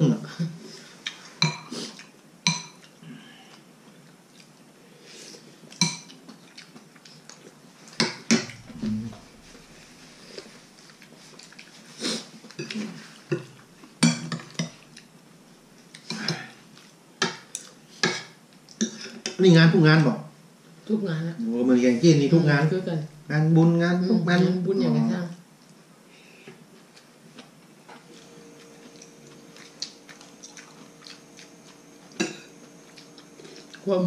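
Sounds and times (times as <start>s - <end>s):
cutlery clinking on dishes: 32.2s - 32.6s.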